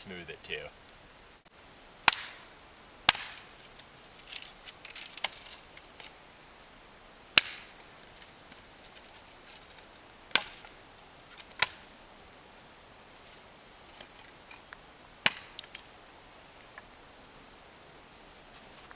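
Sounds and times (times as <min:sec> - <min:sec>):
hatchet chopping sapling: 0:02.0 - 0:02.5, 0:03.1 - 0:03.5, 0:07.4 - 0:07.8, 0:10.3 - 0:10.7, 0:11.5 - 0:11.8, 0:15.2 - 0:15.8.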